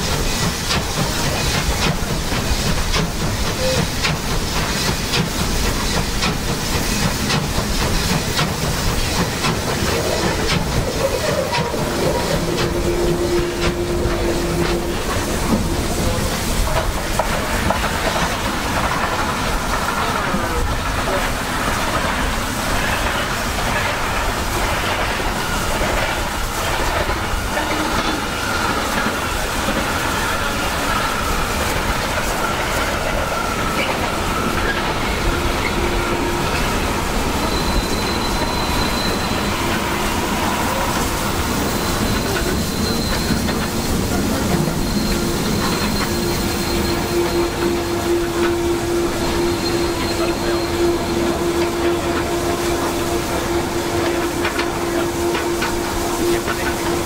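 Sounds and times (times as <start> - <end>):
steam locomotive rumbling: 0.0 - 57.0
thin wheel squeal: 32.5 - 52.2.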